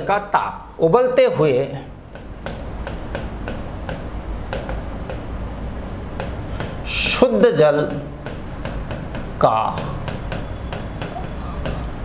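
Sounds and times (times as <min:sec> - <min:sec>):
pen scratching on writing board: 0:01.9 - 0:12.0
pen taps: 0:02.1 - 0:05.4, 0:06.2 - 0:06.8, 0:07.8 - 0:11.9.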